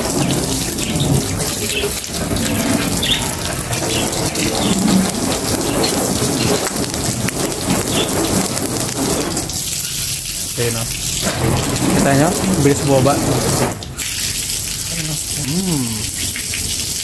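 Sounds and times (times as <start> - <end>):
hose water spraying on car: 0.0 - 17.0.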